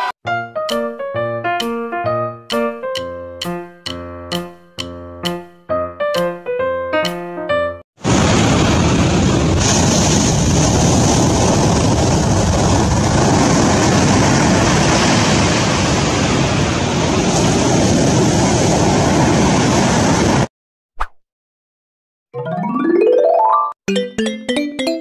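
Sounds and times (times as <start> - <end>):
surf rushing: 8.0 - 20.5.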